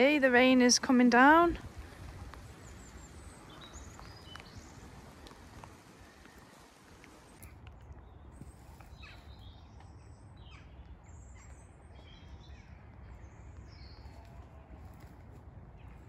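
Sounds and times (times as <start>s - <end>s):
wind rumbling on microphone: 0.0s - 16.0s
birds calling: 1.7s - 7.4s.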